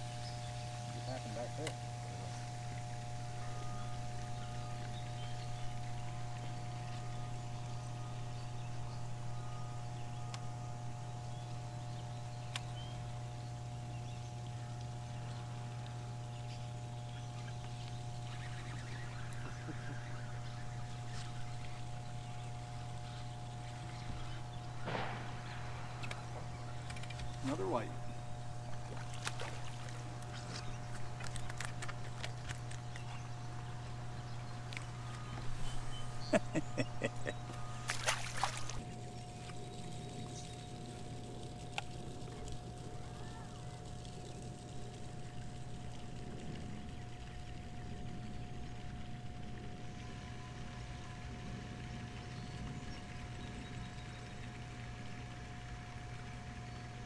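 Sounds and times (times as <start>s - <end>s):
low electrical hum: 0.0s - 57.0s
faint higher tones: 0.1s - 11.8s.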